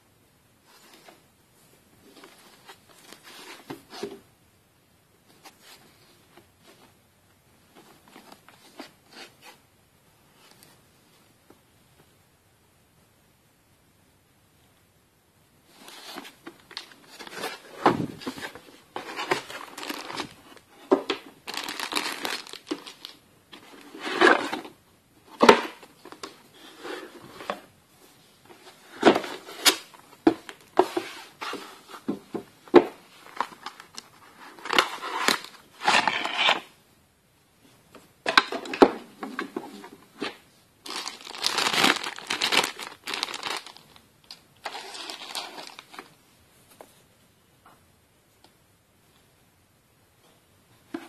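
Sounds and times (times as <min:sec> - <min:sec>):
plastic bags crinkling: 0:16.7 - 0:23.2, 0:40.2 - 0:46.1
cardboard box sliding and rustling: 0:17.1 - 0:20.3.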